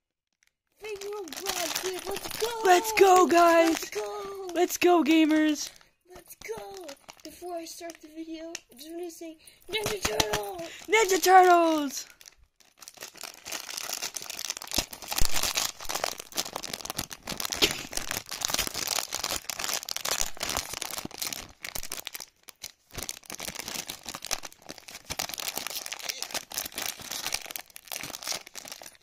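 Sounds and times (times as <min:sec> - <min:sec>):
foil wrapper crinkling: 0:00.4 - 0:09.1, 0:09.7 - 0:29.0.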